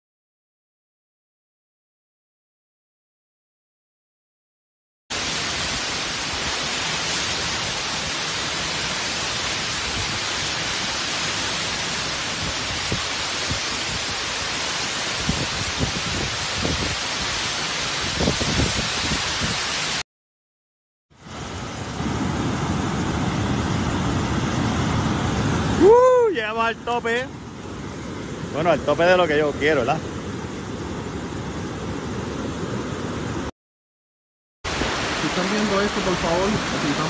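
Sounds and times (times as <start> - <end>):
torrential rain hissing: 5.1 - 20.0, 21.2 - 33.5, 34.7 - 37.0
wind gusts buffeting microphone: 15.2 - 17.3, 18.0 - 19.6.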